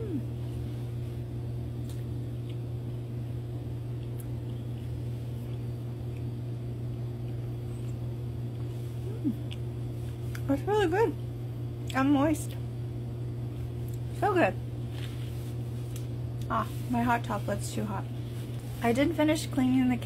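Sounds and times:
steady low hum: 0.0s - 20.0s
closed-mouth chewing: 3.9s - 10.5s.

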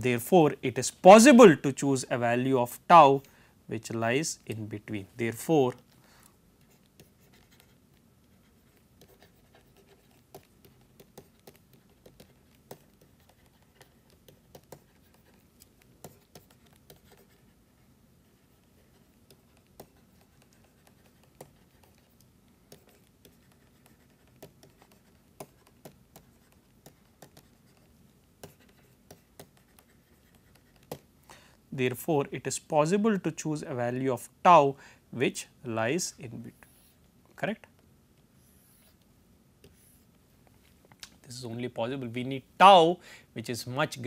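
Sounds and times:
low steady hum: 0.0s - 44.0s
stylus tapping on tablet screen: 9.0s - 17.4s, 19.2s - 31.1s.

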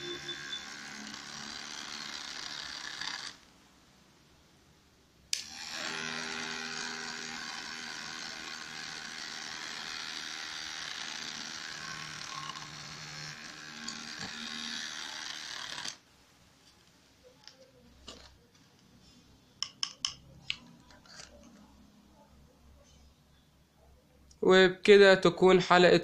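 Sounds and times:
small toy motor running: 0.0s - 3.4s, 5.4s - 16.0s.

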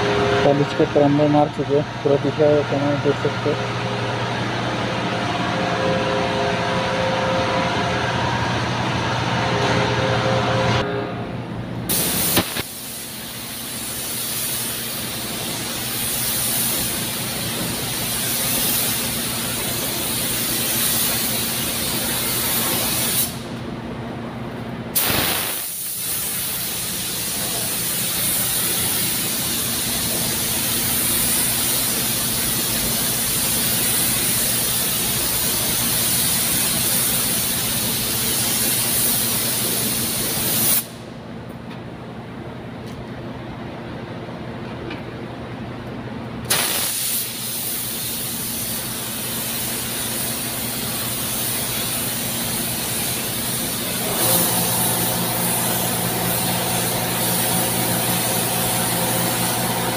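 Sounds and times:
paint spray gun hissing: 11.9s - 23.4s, 25.0s - 41.0s, 46.5s - 59.9s.

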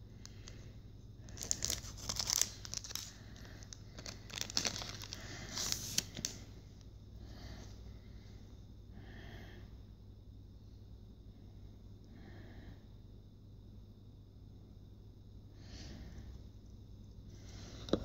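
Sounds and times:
foil wrapper tearing and crinkling: 1.3s - 6.4s.

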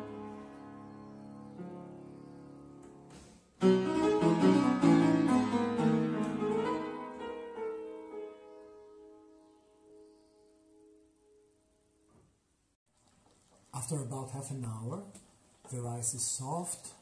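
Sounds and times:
piano playing: 0.0s - 12.0s.

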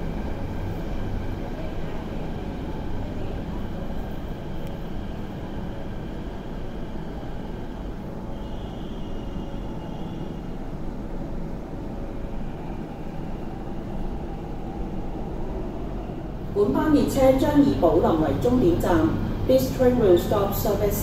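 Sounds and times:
faint high whine: 0.0s - 10.9s
train cabin rumble and hum: 0.0s - 21.0s.

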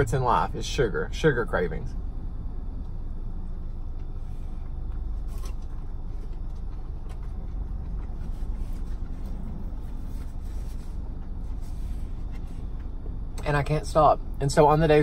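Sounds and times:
car cabin rumble: 0.0s - 15.0s.

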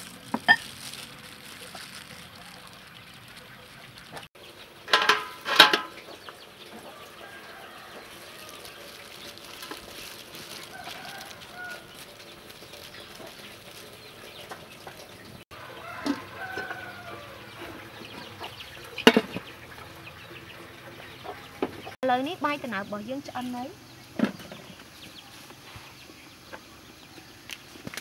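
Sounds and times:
chickens clucking: 0.8s - 22.0s
metal lid clanking: 4.8s - 6.2s, 18.1s - 19.5s.

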